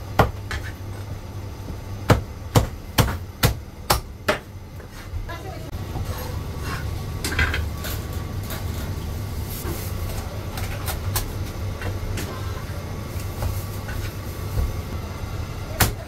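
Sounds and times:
cleaver chopping on wooden block: 0:02.1 - 0:04.4.

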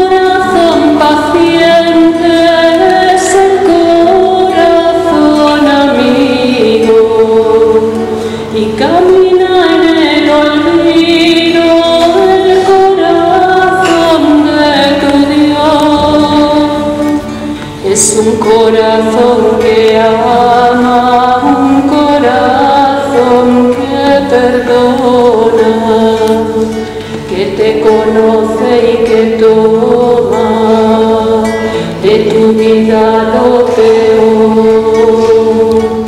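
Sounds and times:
acoustic guitar: 0:00.0 - 0:36.0
woman singing a hymn: 0:00.0 - 0:36.0.

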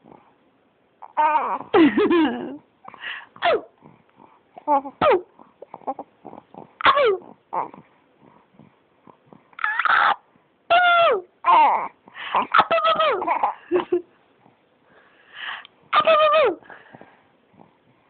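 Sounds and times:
baby coughing: 0:03.4 - 0:03.7, 0:05.0 - 0:05.3, 0:06.8 - 0:07.3
baby making high vocal sounds: 0:06.8 - 0:07.8, 0:09.6 - 0:13.6, 0:16.0 - 0:16.6.

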